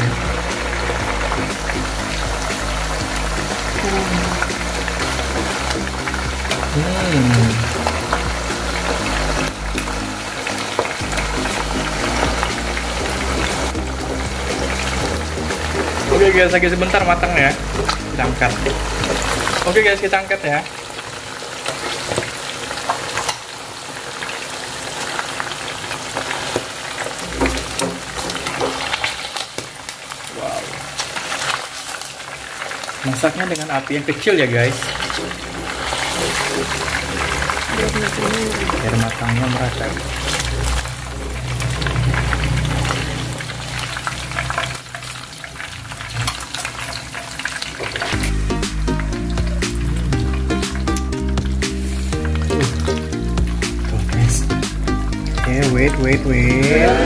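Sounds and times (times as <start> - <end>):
background music: 0.0 - 20.2, 34.6 - 44.0, 48.1 - 57.0
deep-frying oil sizzling: 0.0 - 57.0.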